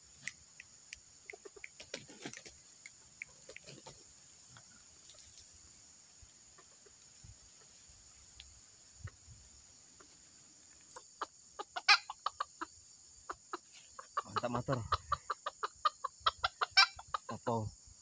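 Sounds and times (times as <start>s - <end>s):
rooster clucking: 1.2s - 4.1s, 10.9s - 17.5s.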